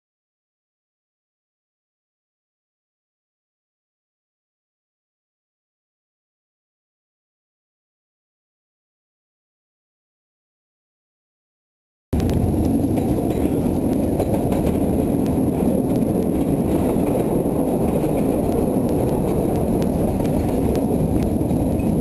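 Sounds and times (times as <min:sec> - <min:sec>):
train rumbling: 0:12.2 - 0:22.0
train wheel clicks: 0:12.2 - 0:22.0.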